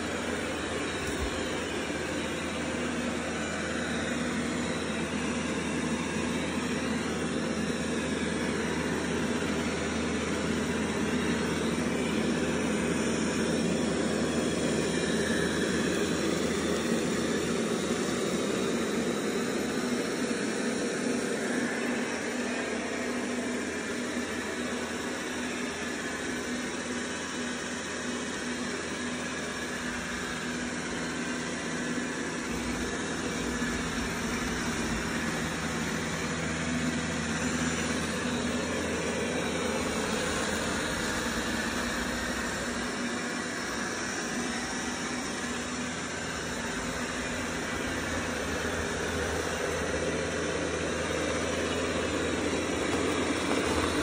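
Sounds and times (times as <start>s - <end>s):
robot vacuum whirring: 0.0s - 54.0s.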